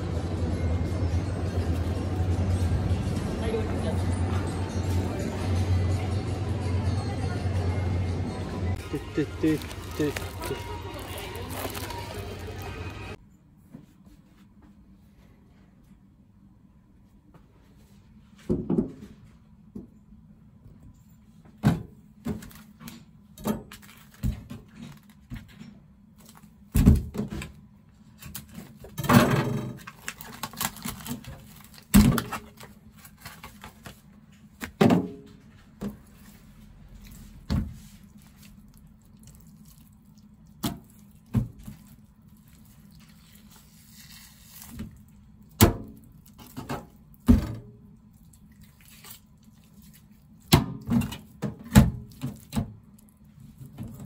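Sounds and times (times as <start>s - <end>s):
rustling handling: 8.8s - 13.2s.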